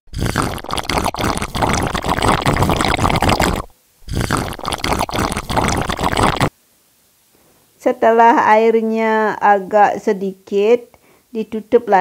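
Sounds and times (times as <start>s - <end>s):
broth boiling and popping: 0.1s - 6.5s.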